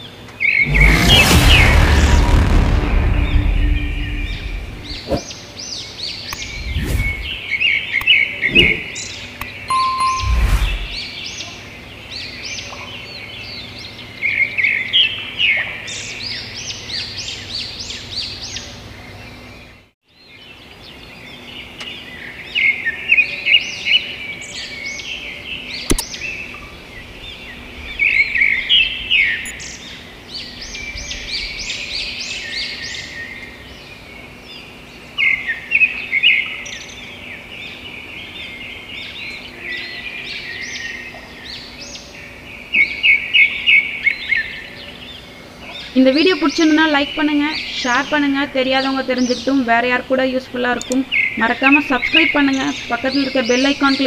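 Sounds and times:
birds chirping: 0:04.3 - 0:11.5, 0:36.6 - 0:54.0
sharp click: 0:25.9 - 0:26.1.

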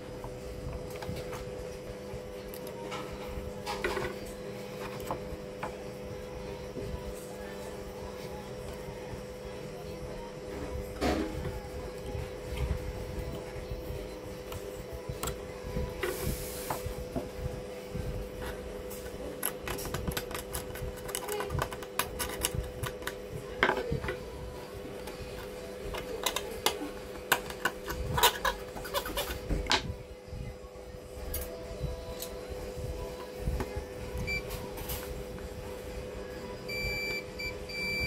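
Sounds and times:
multimeter beep: 0:34.2 - 0:34.5, 0:36.7 - 0:38.0.

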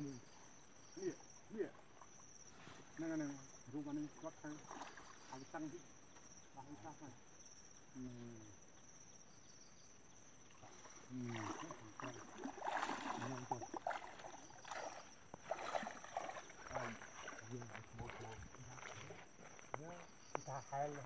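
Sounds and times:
high insect buzz: 0:00.0 - 0:21.0
water sloshing and splashing: 0:04.4 - 0:05.6, 0:10.5 - 0:19.8.

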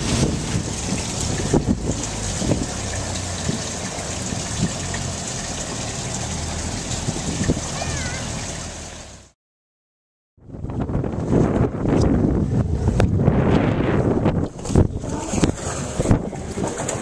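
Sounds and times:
wind buffeting microphone: 0:00.0 - 0:05.0, 0:06.6 - 0:08.2, 0:10.4 - 0:17.0
boat motor running: 0:00.0 - 0:09.3, 0:10.7 - 0:17.0
water rushing along hull: 0:00.0 - 0:09.4, 0:10.6 - 0:17.0.

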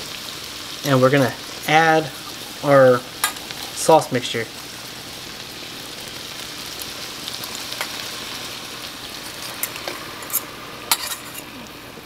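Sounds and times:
chicken sizzling in a hot pan: 0:00.0 - 0:12.0
metal spoon clinking steel bowl: 0:09.5 - 0:11.5.

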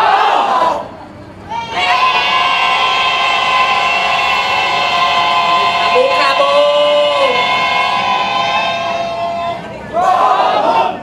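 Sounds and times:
train horn long blast: 0:01.8 - 0:09.6.

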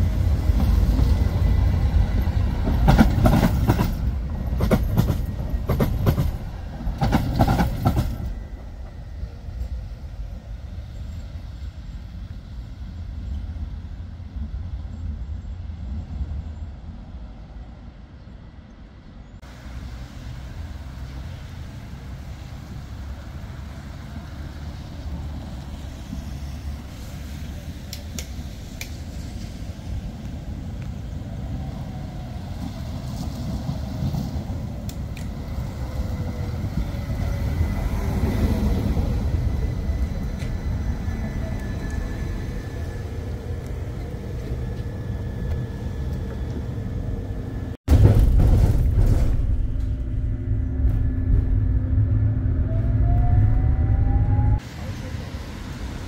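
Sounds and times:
tram rumbling on track: 0:00.0 - 0:56.0
faint falling whine: 0:49.4 - 0:54.6.

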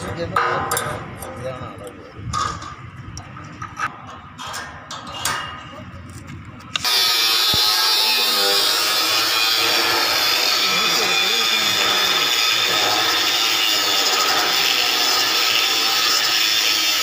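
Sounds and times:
angle grinder cutting steel: 0:06.8 - 0:17.0.

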